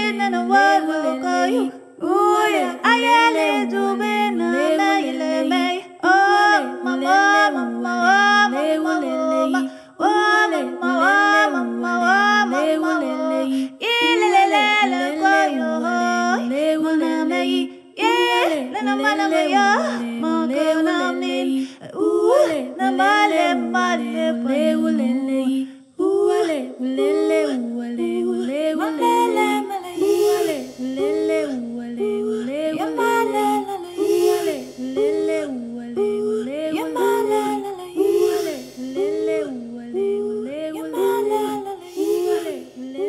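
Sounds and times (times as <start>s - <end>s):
low steady drone: 33.6s - 35.7s.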